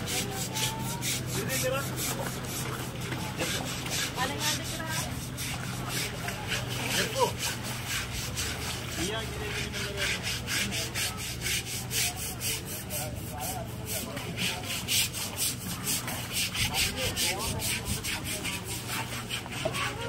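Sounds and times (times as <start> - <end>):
rasping scrubbing of elephant hide: 0.0 - 20.0.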